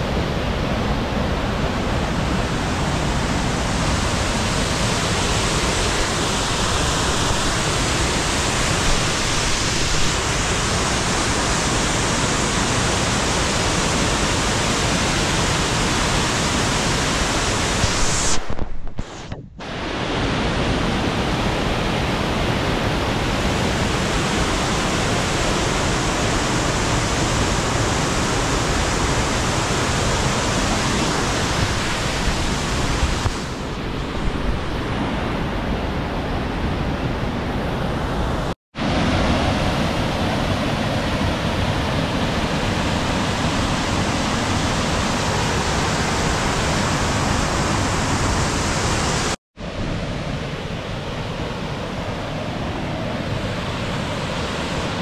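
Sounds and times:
waterfall rushing: 0.0 - 35.6, 37.7 - 49.4.

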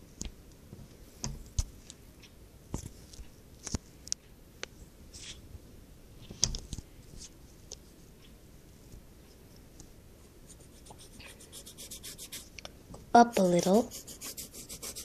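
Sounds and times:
pencil scratching on paper: 10.5 - 12.5, 13.6 - 15.0.

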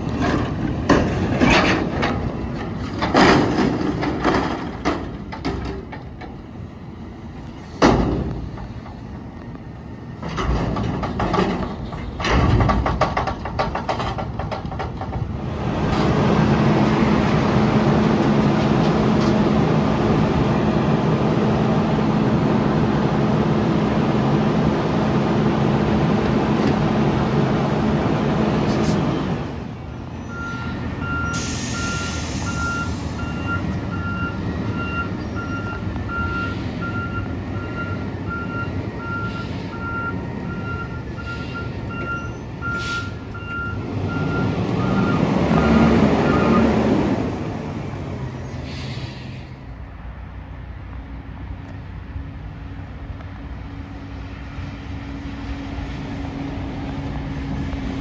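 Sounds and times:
garbage truck engine and hydraulics: 0.0 - 58.0
reversing alarm beeping: 30.3 - 46.7
hiss of air: 31.3 - 33.2, 48.5 - 49.7
engine revving: 43.7 - 48.1.

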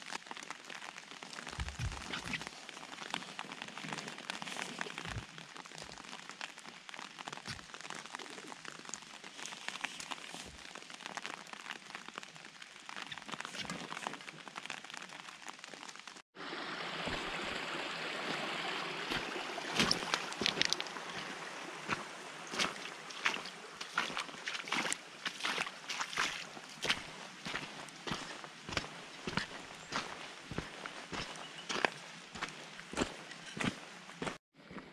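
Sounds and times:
footsteps on wet gravel: 0.0 - 16.0, 16.9 - 34.9
rain pattering on wooden deck: 0.0 - 16.2, 18.5 - 33.7.

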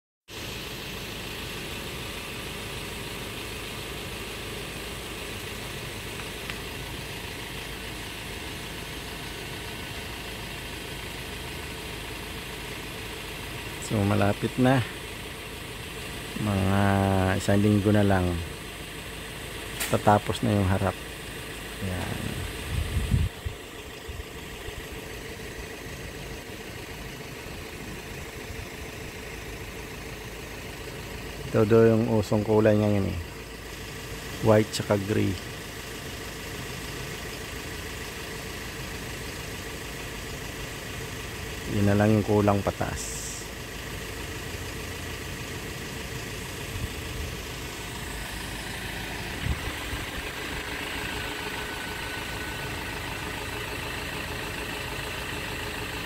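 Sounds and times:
engine idling: 0.3 - 56.0.

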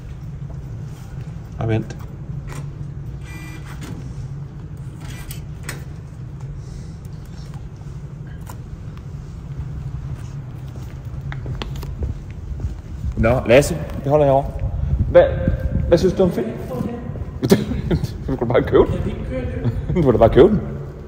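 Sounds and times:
low hum of car park: 0.0 - 21.0
pay machine whirring: 2.4 - 4.0, 4.8 - 6.2.

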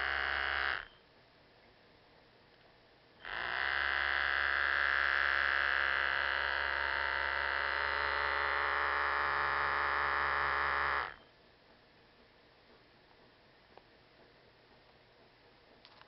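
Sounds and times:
toy electric buzz: 0.0 - 1.0, 3.2 - 11.2.

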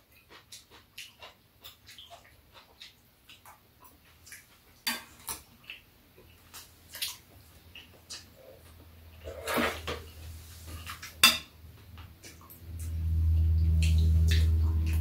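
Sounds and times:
cutlery clinking on metal bowls: 4.9 - 5.4, 10.8 - 11.6.

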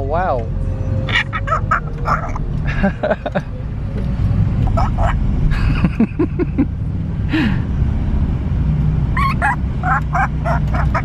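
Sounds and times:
car rumbling on road: 0.0 - 11.0
parrot calling: 1.1 - 2.4, 4.7 - 5.2, 9.2 - 11.0.

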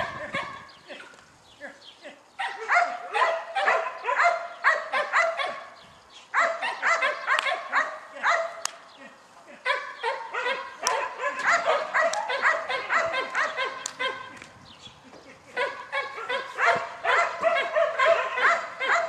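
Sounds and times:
dog barking and yipping: 0.0 - 0.7, 2.4 - 8.6, 9.6 - 14.4, 15.5 - 19.0.

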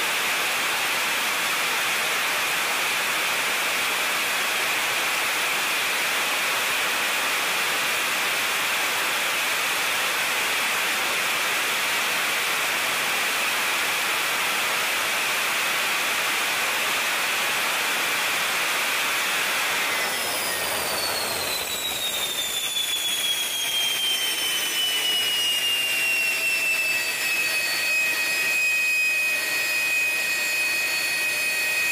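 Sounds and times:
jet engine roaring: 18.2 - 31.9
engine whine falling in pitch: 19.6 - 31.9.

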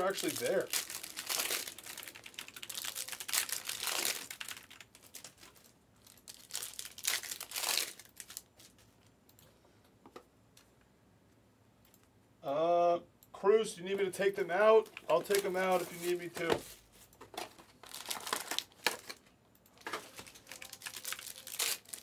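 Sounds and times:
plastic wrapping crinkling: 0.0 - 8.9, 14.8 - 16.8, 17.4 - 19.2, 19.8 - 22.0.

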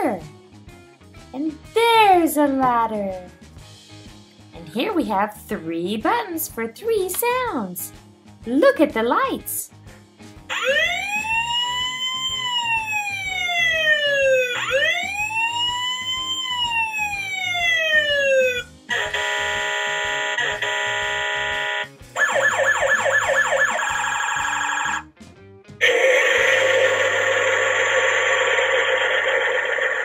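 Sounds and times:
toy siren wail: 10.5 - 25.0, 25.8 - 30.0
fast warbling alarm: 10.5 - 25.1, 25.8 - 30.0.

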